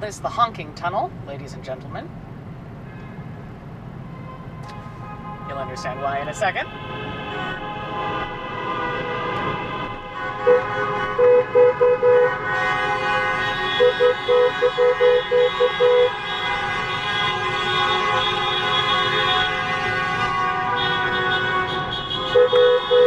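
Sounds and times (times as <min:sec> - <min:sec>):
many car horns blaring: 0:02.8 - 0:23.0
car horn short toots: 0:06.6 - 0:23.0.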